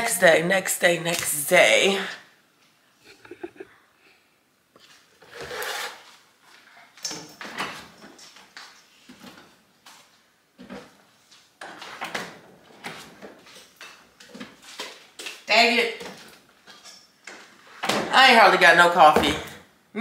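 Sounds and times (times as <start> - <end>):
drawers and cabinets opening and shutting: 5.2 - 6.1, 6.9 - 8.3, 11.6 - 14.6.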